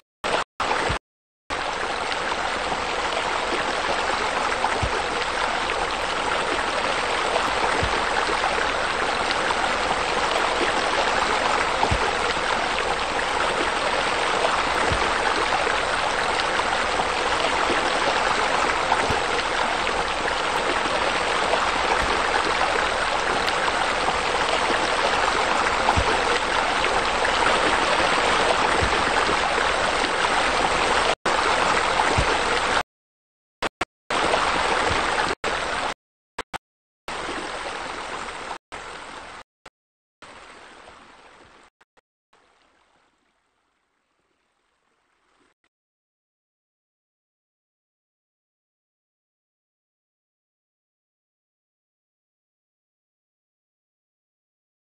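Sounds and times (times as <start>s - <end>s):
rushing water: 0.0s - 32.9s, 34.1s - 36.5s, 37.1s - 39.5s, 40.2s - 41.7s.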